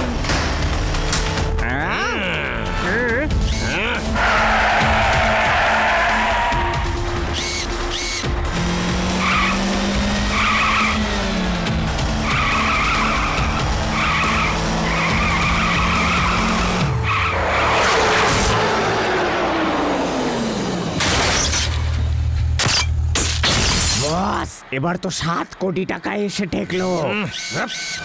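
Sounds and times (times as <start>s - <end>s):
background music: 0.0s - 21.0s
cartoon car engine: 1.6s - 21.9s
tyres skidding: 2.7s - 22.6s.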